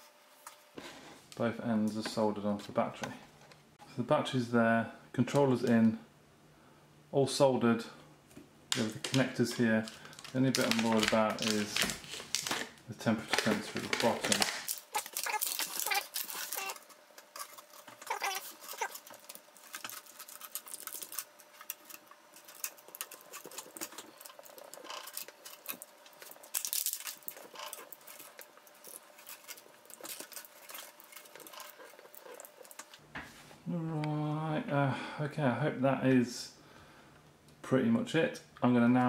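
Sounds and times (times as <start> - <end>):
plastic film crinkling: 8.7 - 33.0.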